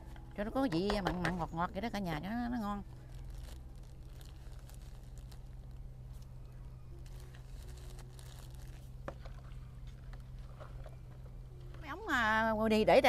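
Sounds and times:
steady low hum: 0:00.0 - 0:13.0
faint crinkling: 0:02.4 - 0:11.8.

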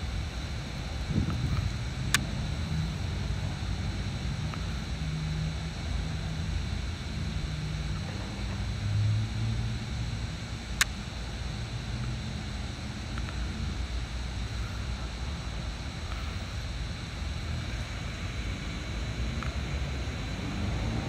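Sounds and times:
wind rumbling on microphone: 0:00.0 - 0:02.0.

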